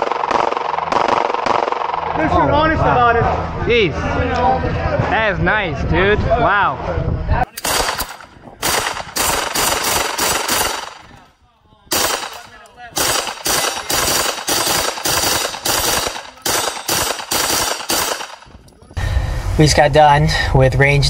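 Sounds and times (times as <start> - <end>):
gunshots: 0.0 - 2.2, 7.5 - 11.2, 11.9 - 18.6.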